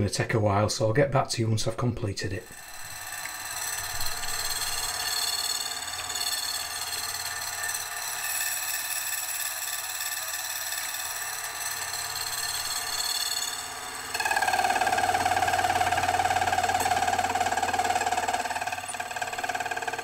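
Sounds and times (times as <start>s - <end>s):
slitting saw cutting rod: 2.4s - 20.0s.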